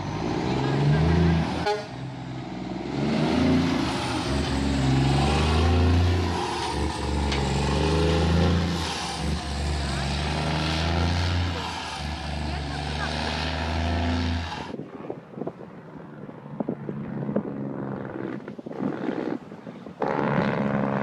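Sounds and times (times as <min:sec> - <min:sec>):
truck diesel engine pulling away: 0:00.0 - 0:14.8.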